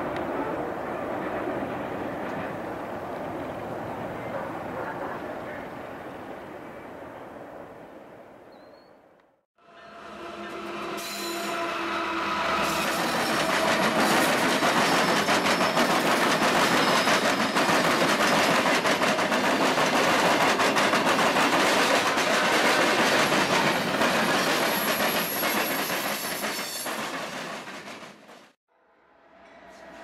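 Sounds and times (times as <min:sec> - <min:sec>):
diesel locomotives passing: 0:00.0 - 0:07.9, 0:09.6 - 0:25.6
high wheel squeal: 0:09.8 - 0:15.9
train wheels clattering on rails: 0:12.6 - 0:28.6.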